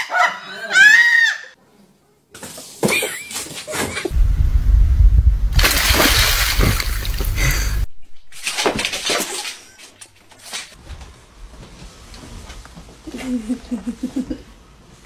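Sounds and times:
deep rumble: 4.1 - 8.3
dog splashing through water: 5.5 - 9.6.

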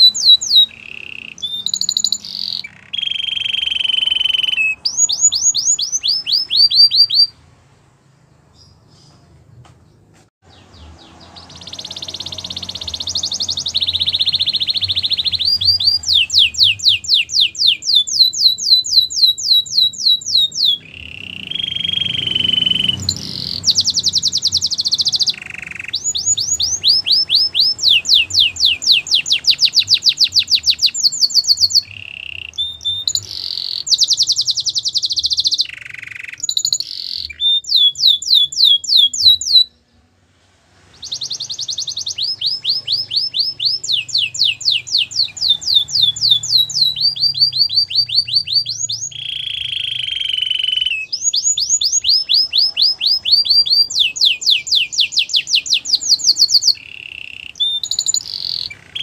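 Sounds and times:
canary singing trills: 0.0 - 7.5, 8.3 - 40.1, 40.8 - 59.0.

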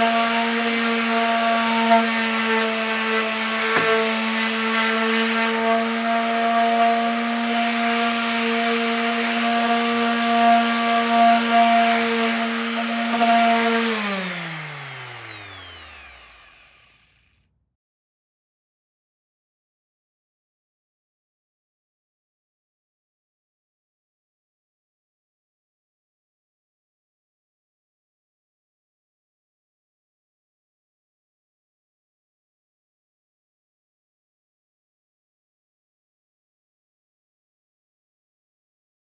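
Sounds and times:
electric sander running on wood: 0.0 - 17.4.

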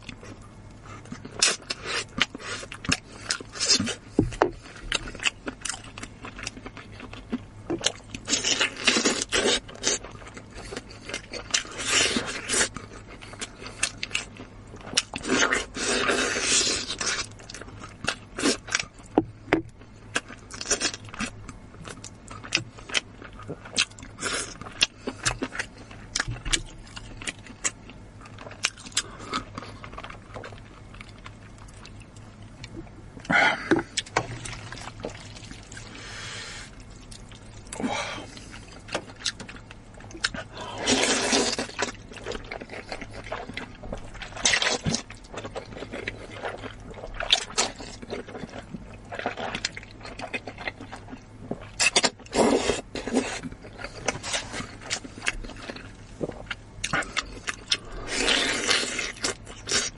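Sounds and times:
wet chewing: 0.0 - 59.9
slurping noodles: 40.6 - 41.7, 52.3 - 53.4.

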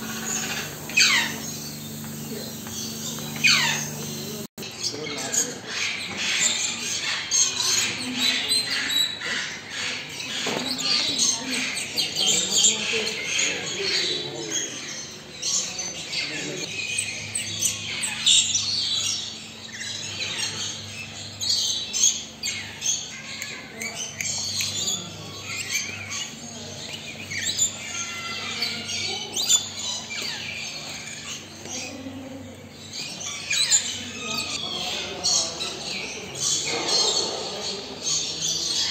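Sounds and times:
faint steady hum: 0.0 - 4.5
parrots squawking and chirping: 0.0 - 4.5, 13.7 - 32.0.

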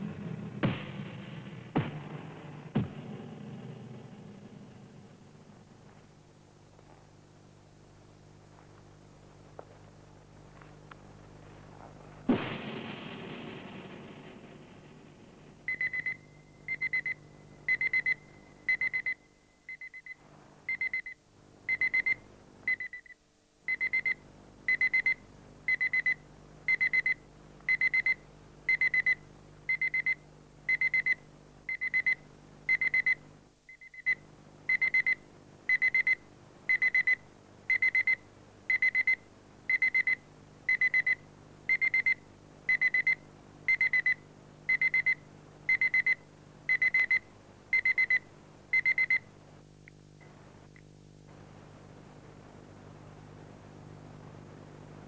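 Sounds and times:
faint low hum: 0.0 - 55.0
electronic alarm beeping: 15.7 - 48.2, 48.8 - 49.2.

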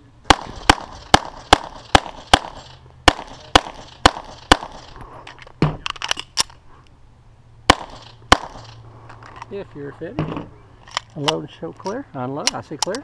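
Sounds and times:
pistol shots: 0.3 - 5.0, 7.7 - 8.8.

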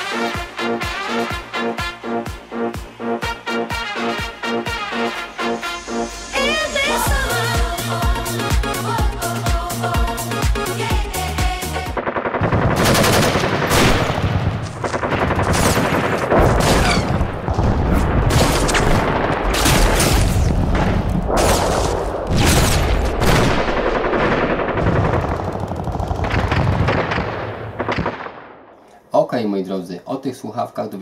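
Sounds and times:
video game gunfire: 11.8 - 28.4.

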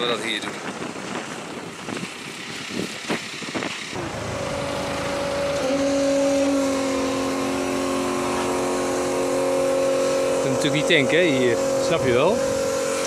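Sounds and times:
fuel pump humming: 3.9 - 13.0.

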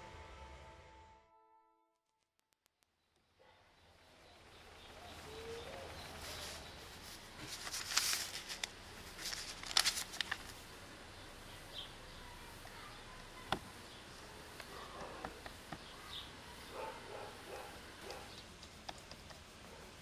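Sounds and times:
faint bird chirps: 3.0 - 7.3, 10.6 - 19.9
paper rustling: 5.2 - 10.8.

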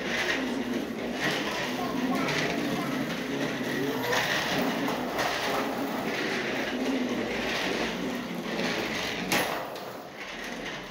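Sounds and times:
bicycle wheels rattling on tile: 0.0 - 10.9.

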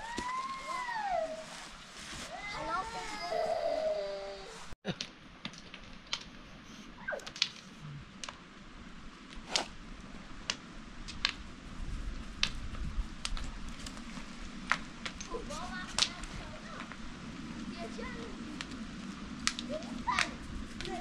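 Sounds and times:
wood fire crackling and popping: 4.9 - 6.4, 7.0 - 21.0.

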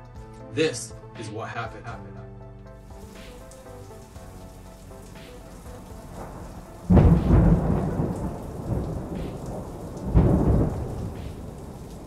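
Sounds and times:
steady rain: 2.8 - 12.0
thunderclaps rumbling: 5.4 - 12.0.

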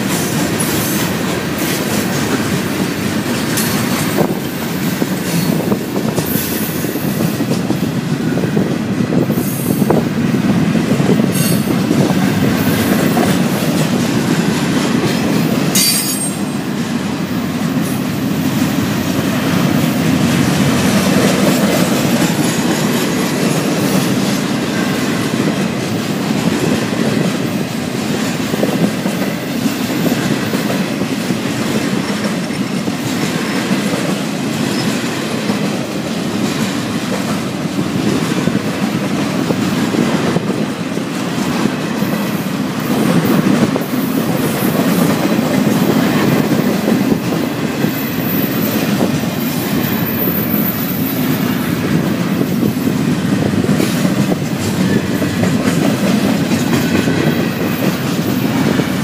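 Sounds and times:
train wheels rumbling on rail: 0.0 - 59.0
sharp metal clank: 15.7 - 16.4.

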